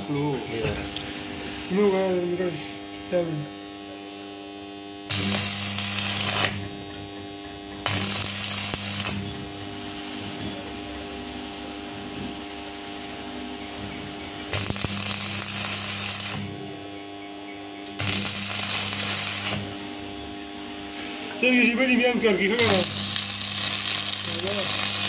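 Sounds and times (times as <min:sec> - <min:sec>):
steady electrical hum: 0:00.0 - 0:25.0
welding arc crackling: 0:04.8 - 0:10.2, 0:14.3 - 0:17.0, 0:17.8 - 0:21.5, 0:22.1 - 0:25.0.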